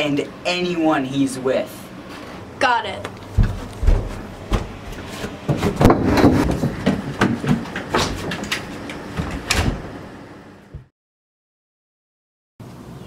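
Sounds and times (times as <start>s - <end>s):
knocks bumps and rattles: 3.3s - 10.0s.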